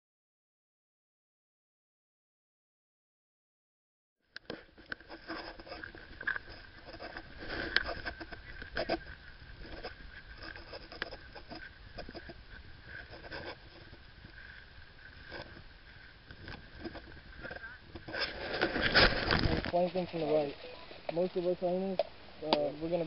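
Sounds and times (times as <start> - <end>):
muffled rustling: 4.4 - 23.0
faint steady tone: 19.7 - 23.0.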